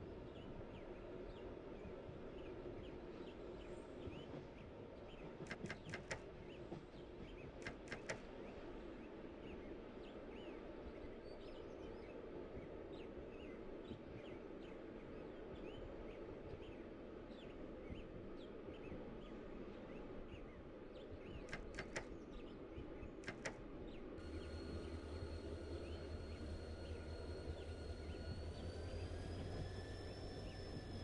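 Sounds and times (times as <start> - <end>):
train interior low rumble: 0.0 - 31.0
sharp clicks: 5.5 - 6.2, 7.6 - 8.2, 21.5 - 22.1, 23.2 - 23.6
electric traction drive whine: 24.2 - 31.0.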